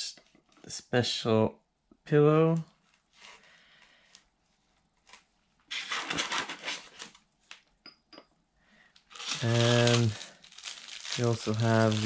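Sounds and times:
rustling handling noise: 2.6s - 7.6s, 8.9s - 12.0s.

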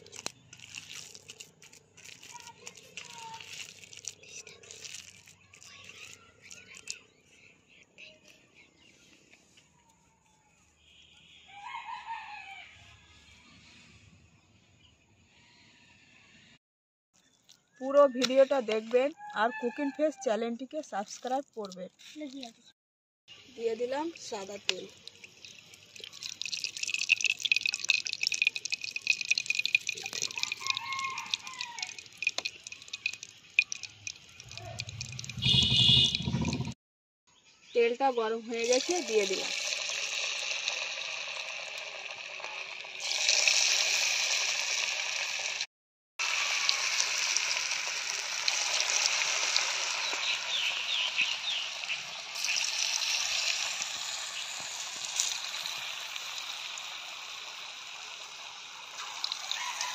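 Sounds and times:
oil pouring: 0.0s - 6.1s, 24.2s - 36.8s, 38.6s - 45.6s, 46.2s - 59.9s
rooster crowing: 11.5s - 13.0s, 30.3s - 32.0s, 59.4s - 59.9s
hot oil crackling hiss: 38.8s - 45.6s, 46.2s - 59.9s.

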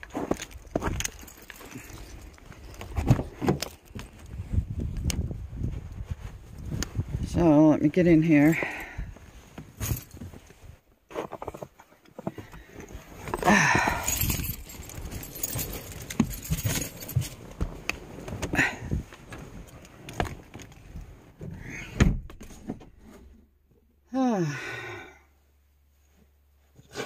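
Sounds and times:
keys jangling: 0.4s - 2.8s, 9.8s - 10.2s, 13.3s - 17.4s
clicks knocks and rustles: 14.5s - 18.6s.

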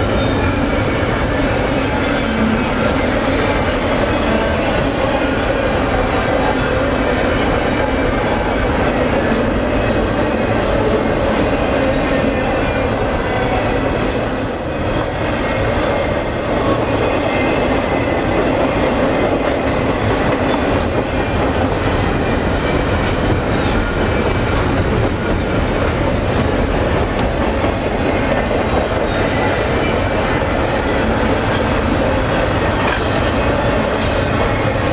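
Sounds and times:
train wheels rumbling on rails: 0.0s - 34.9s.

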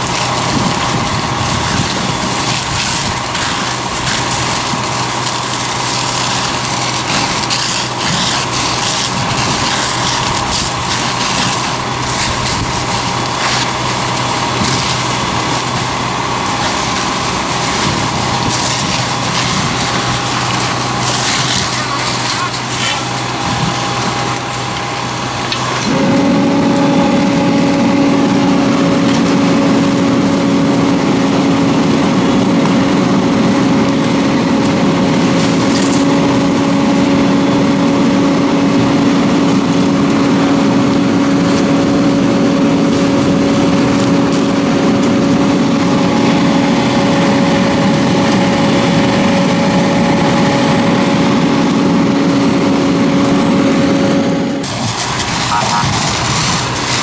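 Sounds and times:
engine and pump running: 0.0s - 57.0s
water spray hissing: 54.6s - 57.0s.

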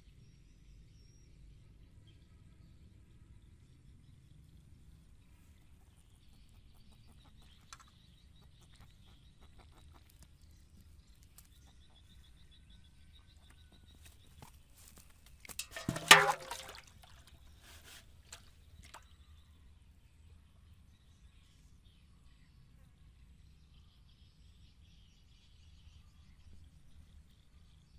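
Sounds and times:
fish splashing in water: 15.6s - 17.3s.

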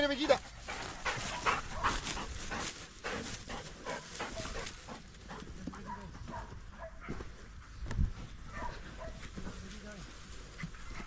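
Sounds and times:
dog panting: 0.0s - 6.9s, 10.5s - 11.0s.

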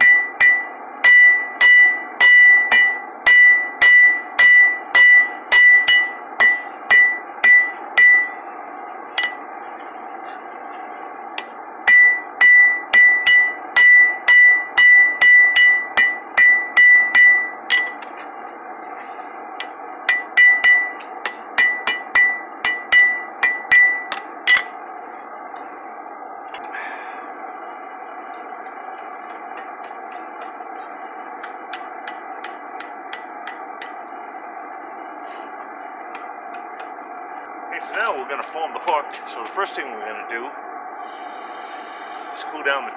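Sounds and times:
hammer striking iron on anvil: 0.0s - 8.6s, 9.2s - 9.5s, 11.4s - 18.2s, 19.6s - 24.8s, 28.3s - 34.1s.

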